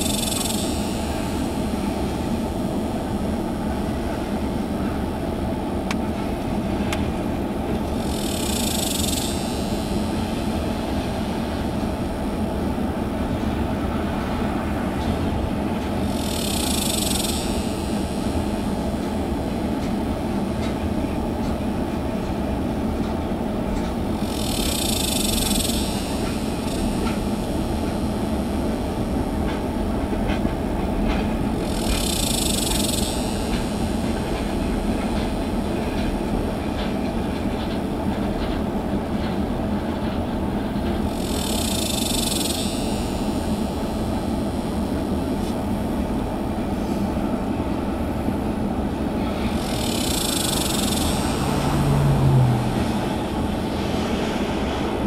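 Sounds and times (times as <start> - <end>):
high hiss: 0.0 - 3.6, 7.9 - 12.4, 16.0 - 19.3, 49.2 - 54.8
train wheels rumbling on rail: 0.0 - 55.0.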